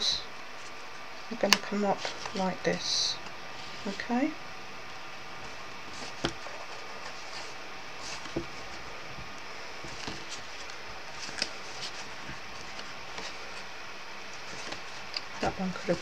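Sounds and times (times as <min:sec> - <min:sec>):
steady low hiss: 0:00.0 - 0:16.0
card rustling and crinkling: 0:00.6 - 0:02.5, 0:05.4 - 0:16.0.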